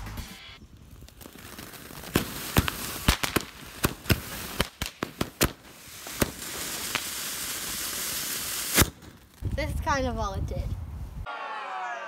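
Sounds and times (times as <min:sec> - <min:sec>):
firework crackling pops: 0:00.2 - 0:10.0
firework sparks hissing: 0:00.4 - 0:09.6.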